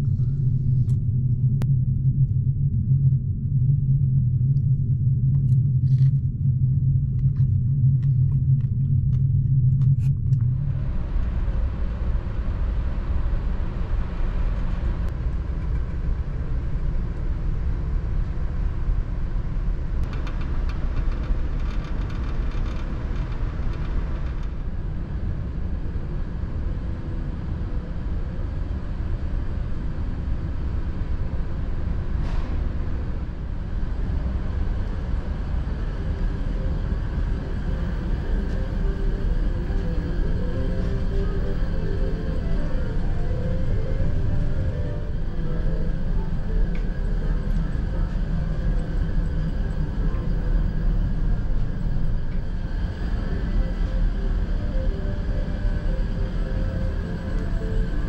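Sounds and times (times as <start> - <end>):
ship engines rumbling: 36.0 - 58.0.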